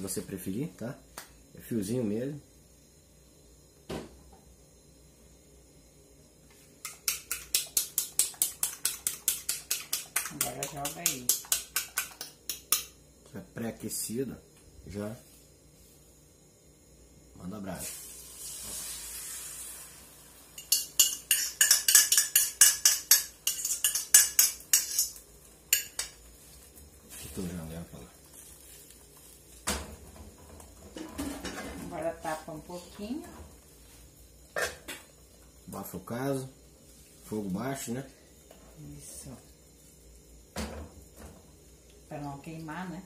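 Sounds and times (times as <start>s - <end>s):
fork beating eggs in bowl: 6.8s - 12.9s, 20.6s - 26.1s
fork clinking against glass bowl: 20.6s - 26.1s.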